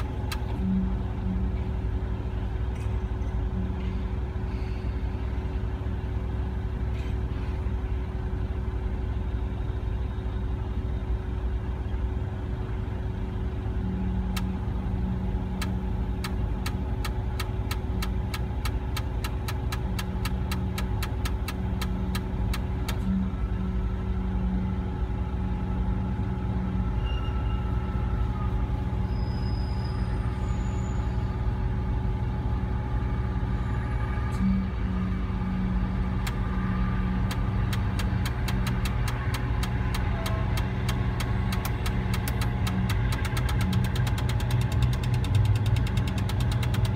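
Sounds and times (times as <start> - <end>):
sharp clicks: 0.0 - 0.6, 15.6 - 23.0, 37.3 - 46.9
crane diesel engine rumbling: 0.0 - 46.9.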